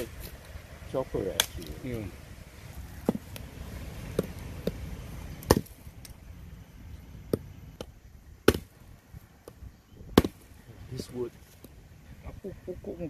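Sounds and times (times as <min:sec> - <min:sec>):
cleaver chopping a branch: 0:01.3 - 0:01.8, 0:03.0 - 0:03.5, 0:04.1 - 0:04.8, 0:05.4 - 0:06.2, 0:07.3 - 0:08.8, 0:09.4 - 0:10.6.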